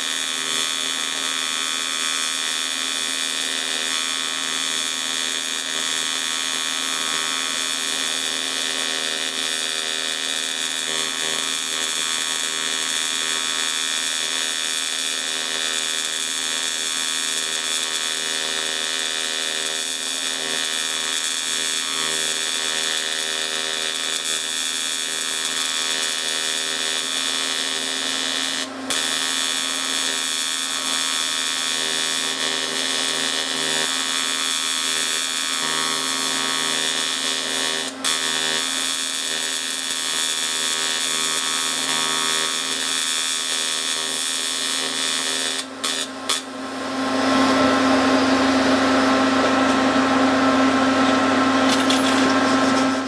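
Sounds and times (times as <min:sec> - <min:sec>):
welding arc buzzing: 0:00.0 - 0:53.0
welding arc click: 0:06.6 - 0:46.5.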